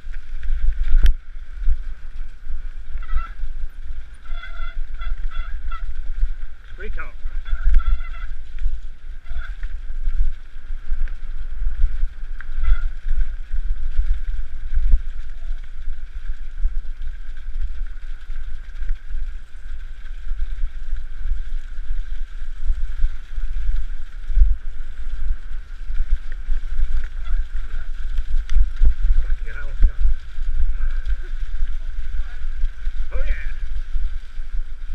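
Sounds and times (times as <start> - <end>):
wind buffeting microphone: 0.0 - 34.9.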